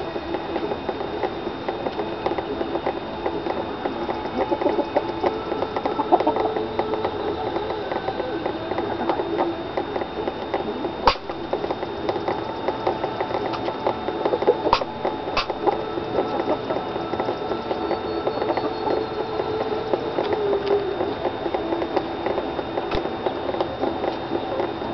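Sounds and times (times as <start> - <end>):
chickens' beaks tapping: 0.2 - 24.9
sharp clicks: 9.7 - 24.7.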